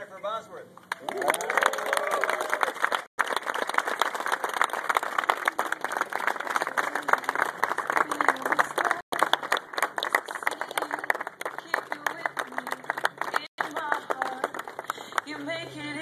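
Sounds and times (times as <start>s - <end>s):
people cheering: 0.9s - 11.2s
crowd applauding: 0.9s - 15.7s.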